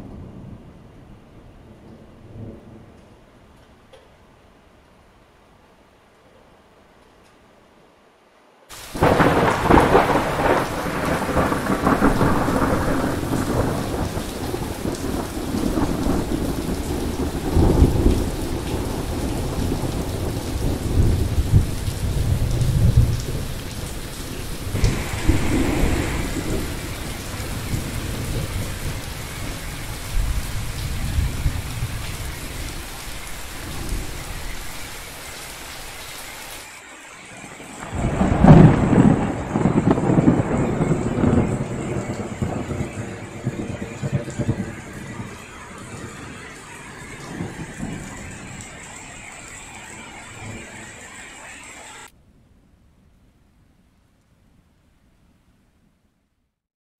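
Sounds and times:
rolling thunder: 0:00.0 - 0:03.0, 0:08.8 - 0:35.2, 0:37.4 - 0:52.6
heavy rain: 0:00.0 - 0:52.2.

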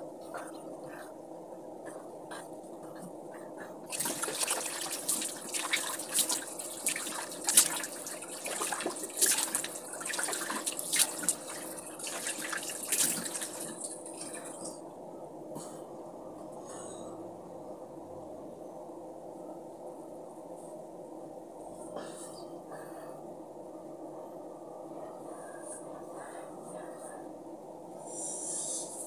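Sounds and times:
water splashing in a basin: 0:03.9 - 0:14.8.

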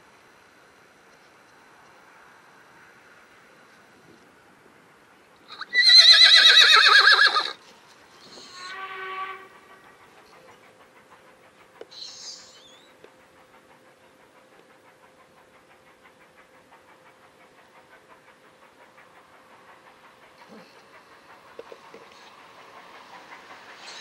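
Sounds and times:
horse whinnying: 0:05.5 - 0:07.6.

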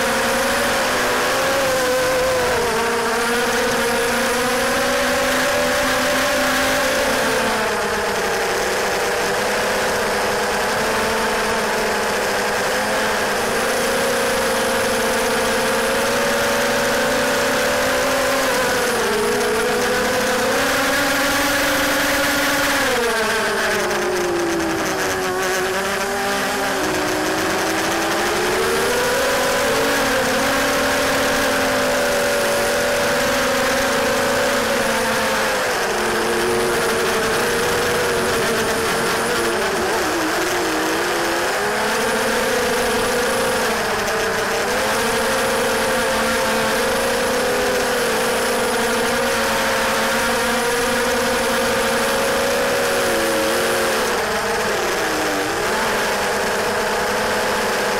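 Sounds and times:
drone motors whining: 0:00.0 - 0:57.9.

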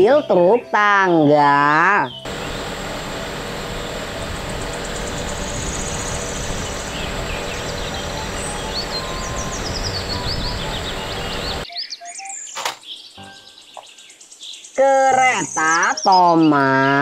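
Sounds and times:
birds chirping: 0:00.0 - 0:17.0
hydraulic work platform running: 0:02.3 - 0:11.6.

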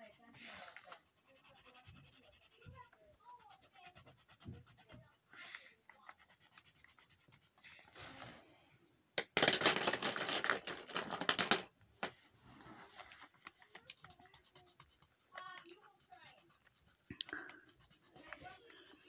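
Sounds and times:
pencil scratching on paper: 0:00.0 - 0:08.3, 0:12.6 - 0:19.0.

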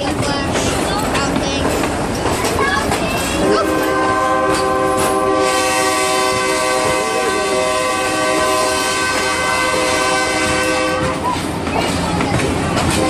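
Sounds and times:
train horn blast: 0:03.4 - 0:11.2.

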